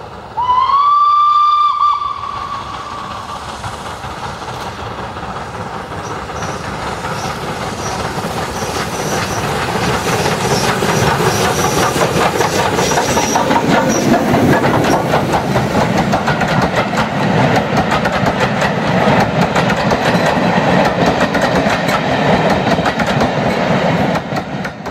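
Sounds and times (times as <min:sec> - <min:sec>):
steam train passing: 0:00.0 - 0:24.9
train wheels clickety-clack: 0:02.0 - 0:24.9.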